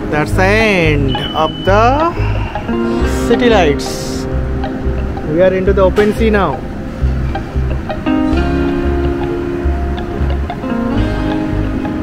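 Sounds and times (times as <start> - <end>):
pulsing bass: 0.0 - 12.0
sustained chords: 0.0 - 12.0.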